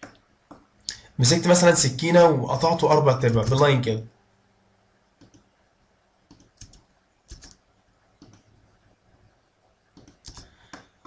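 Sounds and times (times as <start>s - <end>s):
computer mouse clicks: 5.2s - 5.5s, 6.3s - 7.6s, 8.2s - 8.5s, 10.0s - 11.0s
keyboard keystrokes: 6.3s - 7.6s, 10.0s - 10.9s.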